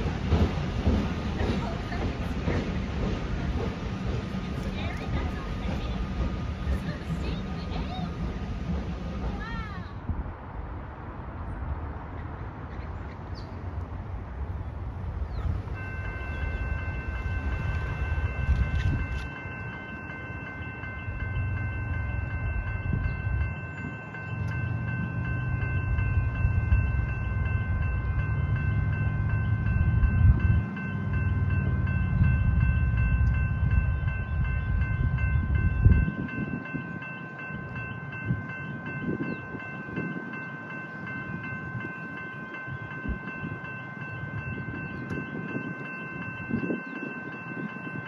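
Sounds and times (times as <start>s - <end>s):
level crossing bells ringing: 15.7s - 48.0s.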